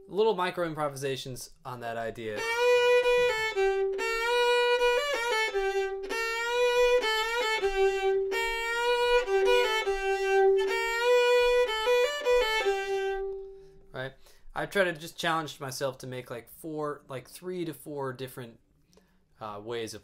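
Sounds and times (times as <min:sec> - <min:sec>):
solo fiddle melody: 0:01.8 - 0:13.8.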